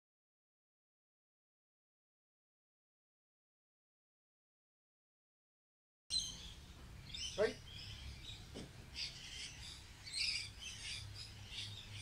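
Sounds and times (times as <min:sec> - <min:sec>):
birds chirping and calling: 0:06.1 - 0:12.0
lower falling bird calls: 0:06.1 - 0:12.0.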